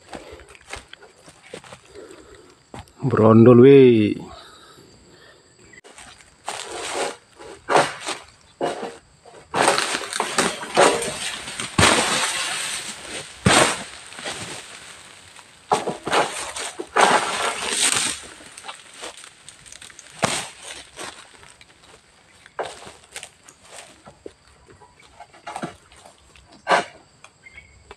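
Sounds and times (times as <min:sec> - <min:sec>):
stalks cracking sharply: 0:09.5 - 0:21.7
sickle tearing and crackling fronds: 0:09.5 - 0:24.0.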